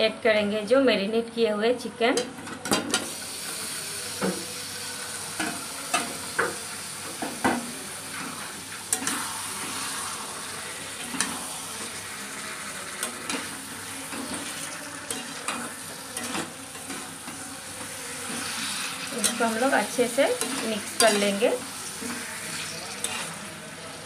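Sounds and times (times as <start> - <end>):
chicken sizzling in hot oil: 2.9 - 24.0
spatula scraping metal pan: 8.1 - 23.6.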